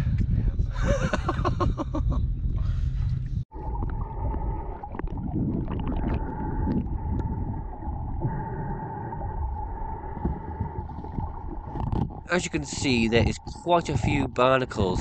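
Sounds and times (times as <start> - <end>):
low water rumble: 0.0 - 15.0
wind rumble: 0.0 - 15.0
underwater clicks and crackles: 3.2 - 15.0
underwater high whine: 3.5 - 15.0.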